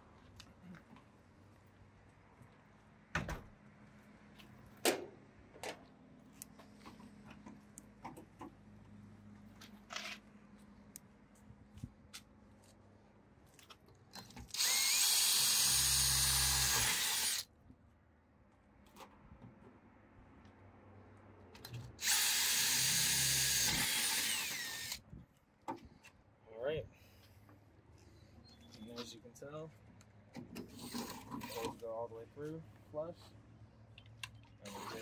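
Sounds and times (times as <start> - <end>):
cordless drill drilling: 14.5 - 17.4, 22.0 - 25.0, 34.7 - 35.0.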